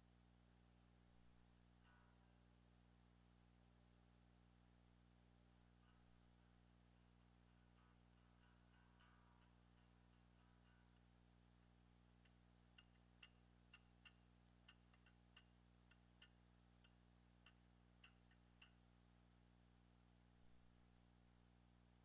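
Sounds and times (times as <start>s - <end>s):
faint electrical hum: 0.0s - 22.0s
faint sharp ticks: 12.1s - 18.9s.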